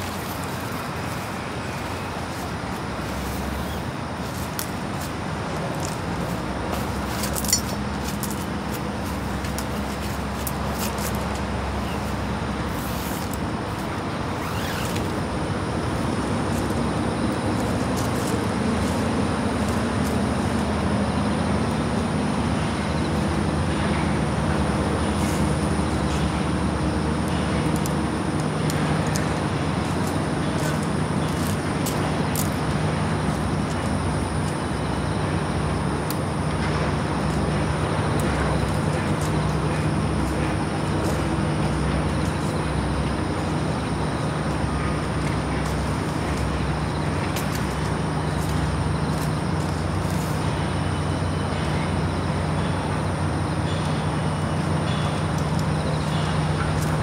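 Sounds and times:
road noise: 0:00.0 - 0:57.0
vehicle engine hum: 0:00.0 - 0:57.0.

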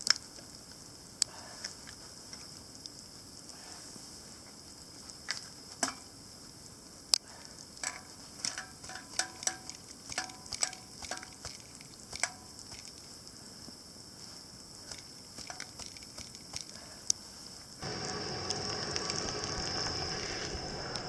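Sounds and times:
camp stove hissing: 0:05.6 - 0:21.0.

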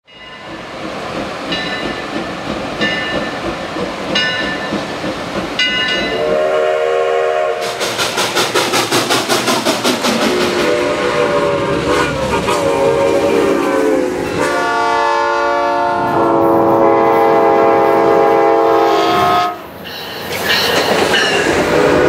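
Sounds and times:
steam locomotive bell ringing: 0:00.0 - 0:00.7, 0:01.5 - 0:03.5, 0:04.1 - 0:04.9, 0:05.6 - 0:06.6, 0:19.8 - 0:21.9
steam locomotive exhaust chuffs: 0:00.4 - 0:19.6
steam whistle chord: 0:06.1 - 0:07.8, 0:10.3 - 0:19.6.

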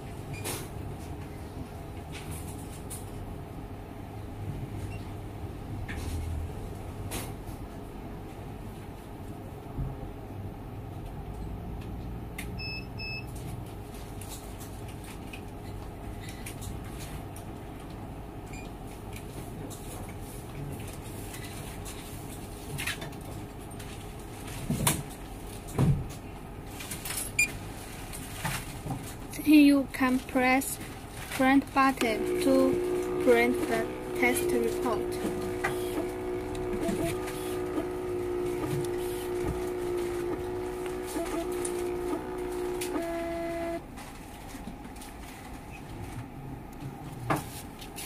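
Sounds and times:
steady low hum: 0:26.1 - 0:47.8.

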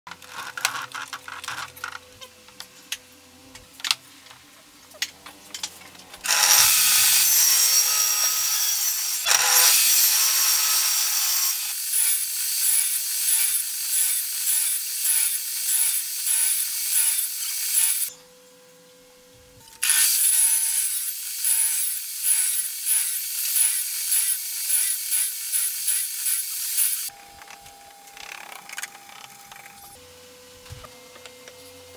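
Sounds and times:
table saw cutting wood: 0:06.2 - 0:18.1, 0:19.8 - 0:27.2.

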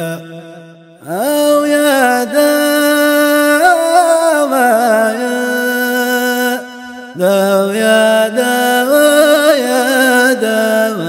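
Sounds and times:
man singing a chant: 0:00.0 - 0:11.0.

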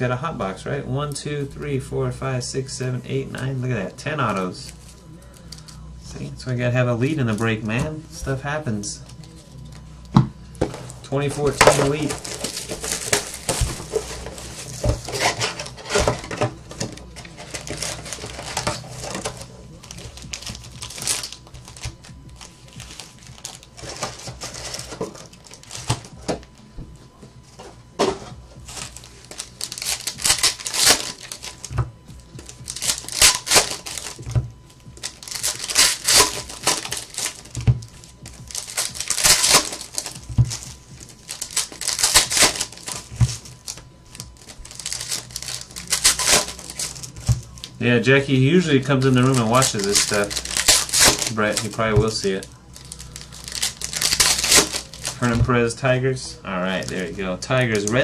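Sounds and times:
packs thumping on table: 0:10.2 - 0:26.5, 0:28.0 - 0:47.6, 0:49.0 - 0:55.5
foil packs rustling and crinkling: 0:10.6 - 0:26.7, 0:27.4 - 0:58.0.

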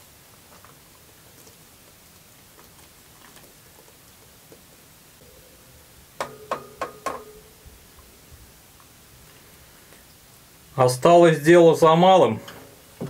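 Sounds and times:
metal spatula striking baking tray: 0:06.2 - 0:07.5.

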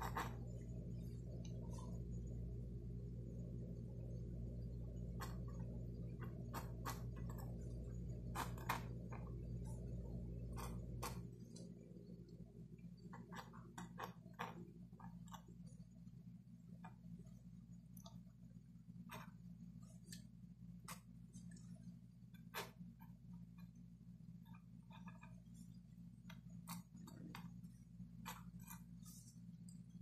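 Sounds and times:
pencil scratching on paper: 0:00.0 - 0:00.6, 0:05.2 - 0:11.4, 0:26.4 - 0:29.6
steady low hum: 0:00.0 - 0:30.0.

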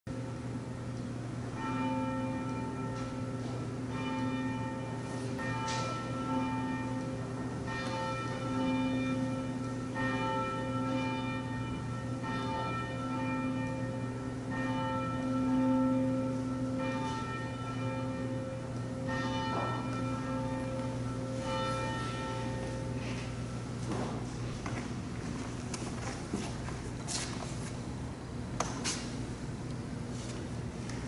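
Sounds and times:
church bell tolling: 0:00.1 - 0:24.6.

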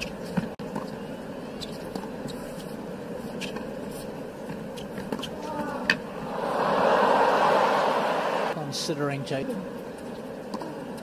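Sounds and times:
murmur of stadium crowd: 0:06.1 - 0:08.8.

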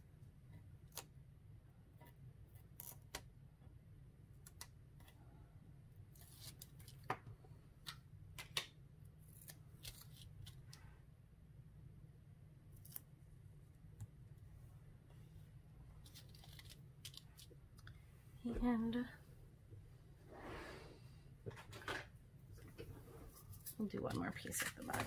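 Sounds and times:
low steady hum: 0:00.0 - 0:25.0
paper and tape rustling: 0:16.0 - 0:17.5, 0:23.3 - 0:25.0.

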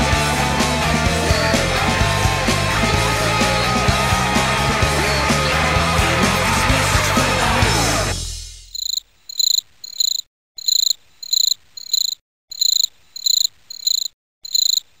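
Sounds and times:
rock song: 0:00.0 - 0:08.4
cricket chirping: 0:08.7 - 0:15.0.

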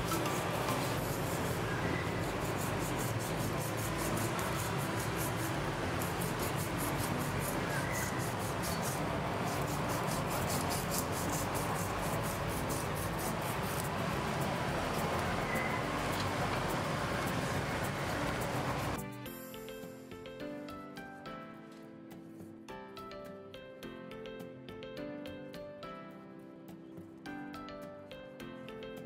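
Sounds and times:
knife scraping fish scales: 0:00.1 - 0:13.9.

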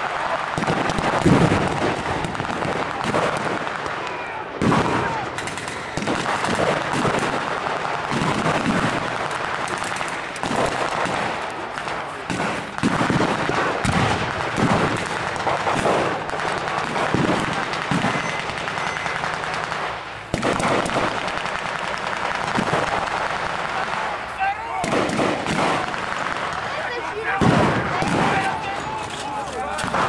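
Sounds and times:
blank gunfire shots: 0:00.6 - 0:04.0, 0:04.6 - 0:24.0, 0:24.8 - 0:26.7, 0:27.3 - 0:28.6, 0:29.7 - 0:30.0
loud gunshot report: 0:08.1 - 0:24.1, 0:24.7 - 0:26.7, 0:27.3 - 0:28.9.

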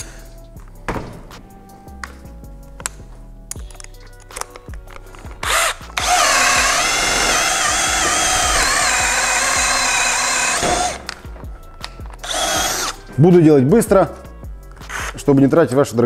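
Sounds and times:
drill motor whining under load: 0:05.4 - 0:11.1, 0:12.2 - 0:13.0.

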